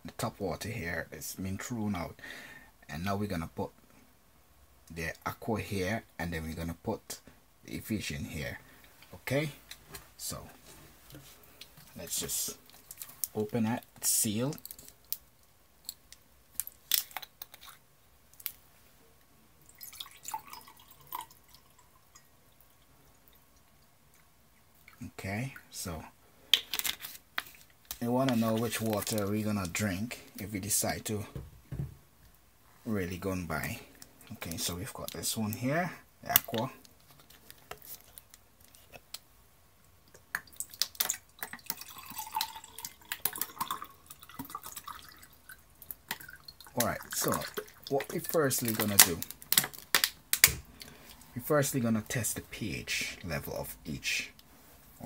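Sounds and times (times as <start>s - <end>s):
water pouring into glass: 19.6s - 23.4s, 41.4s - 48.1s.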